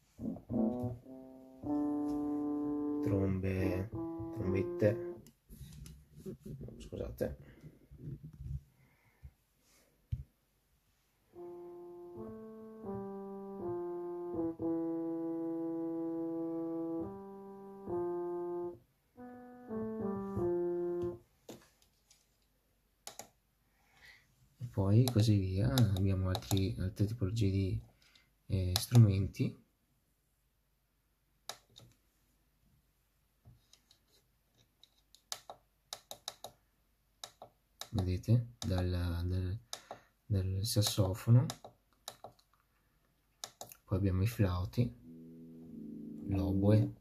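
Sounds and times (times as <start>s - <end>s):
keyboard trumpet melody: 0.2s - 5.2s, 11.3s - 21.2s, 44.8s - 47.0s.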